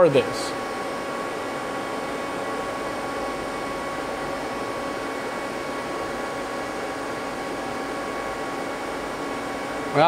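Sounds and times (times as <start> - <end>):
shop machinery whirring: 0.0 - 10.0.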